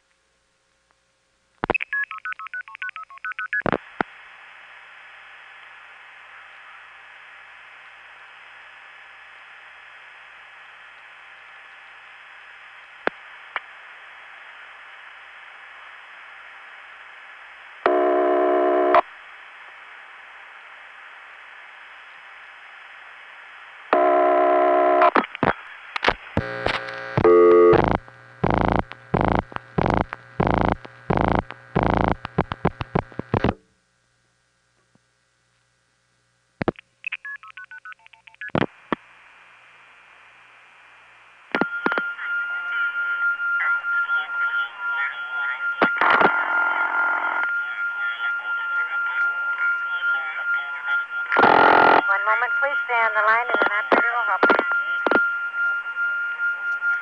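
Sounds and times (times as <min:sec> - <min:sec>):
telephone line hiss: 0:17.8 - 0:19.1, 0:23.9 - 0:25.6, 0:26.4 - 0:33.5, 0:41.6 - 0:57.0
buzzy tone: 0:17.9 - 0:19.0, 0:23.9 - 0:25.2, 0:26.4 - 0:33.5, 0:51.3 - 0:57.0.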